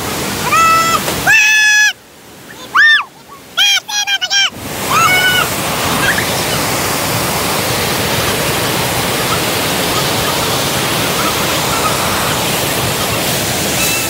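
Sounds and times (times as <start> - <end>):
waterfall pouring: 3.6 - 14.0.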